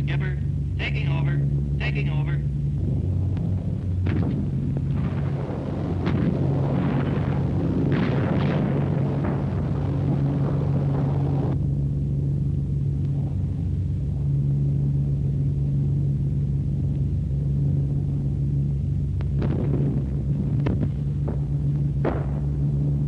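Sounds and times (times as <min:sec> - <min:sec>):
aircraft engines droning: 0:00.0 - 0:23.0
crackly rushing noise: 0:01.9 - 0:11.6.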